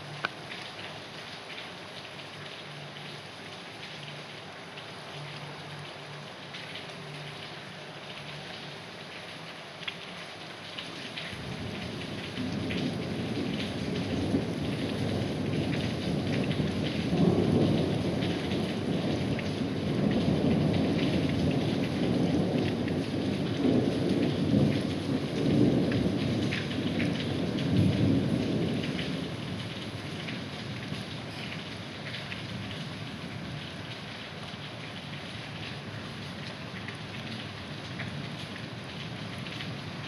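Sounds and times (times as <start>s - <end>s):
heavy rain falling: 0.0s - 40.0s
thunder rumbling: 11.3s - 31.4s.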